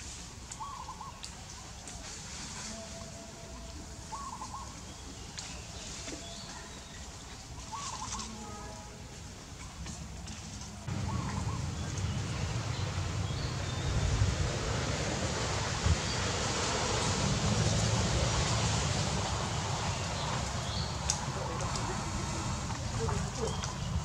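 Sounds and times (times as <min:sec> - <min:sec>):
wind buffeting microphone: 0:10.9 - 0:24.0.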